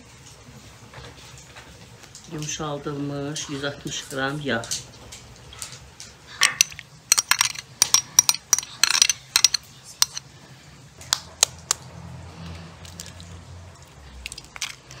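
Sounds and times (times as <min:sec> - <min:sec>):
utensil clinking against bowl: 0:06.4 - 0:10.3.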